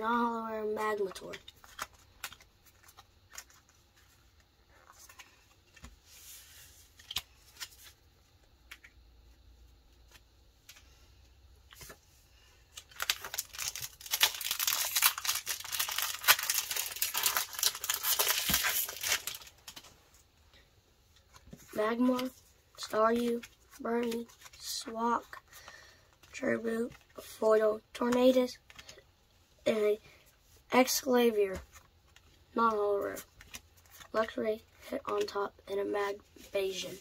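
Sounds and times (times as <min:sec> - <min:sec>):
foil wrapper crinkling: 0:12.8 - 0:19.9.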